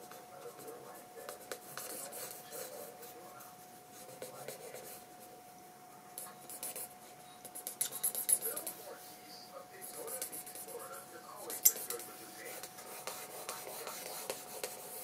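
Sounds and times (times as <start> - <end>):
pencil scratching on paper: 0.5 - 3.2, 3.9 - 5.1, 6.2 - 9.0, 9.8 - 15.0.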